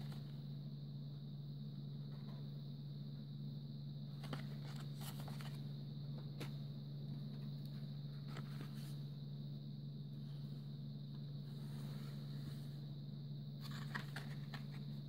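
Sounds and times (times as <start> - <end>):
faint high whine: 0.0 - 15.0
steady low hum: 0.0 - 15.0.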